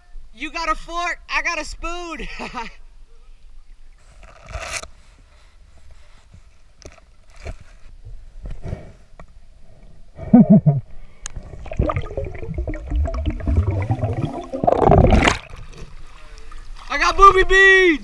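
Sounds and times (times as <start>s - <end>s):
diver breath bubbling: 11.3s - 15.6s
rush of water and bubbles: 11.4s - 16.2s.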